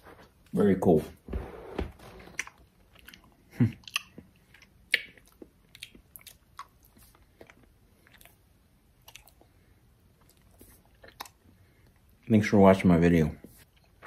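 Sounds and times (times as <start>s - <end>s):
person chewing with mouth smacks: 2.3s - 12.1s.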